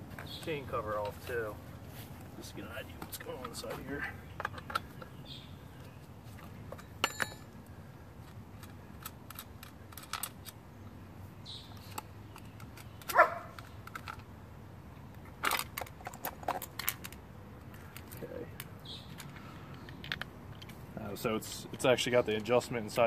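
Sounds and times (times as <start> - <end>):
metal clicks and knocks: 4.3 - 5.1, 8.2 - 10.6.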